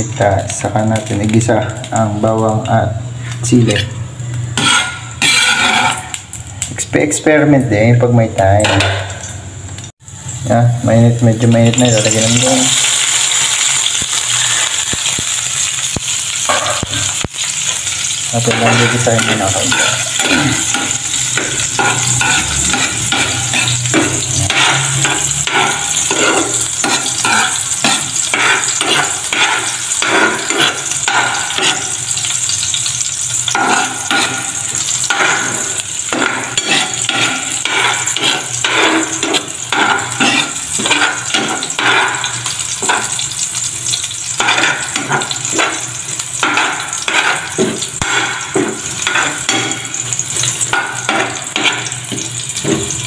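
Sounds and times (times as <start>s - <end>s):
garlic sizzling in hot oil: 0.0s - 53.0s
spatula scraping metal pan: 3.6s - 6.2s, 18.5s - 32.7s, 33.4s - 43.2s, 44.3s - 45.8s, 46.4s - 52.2s.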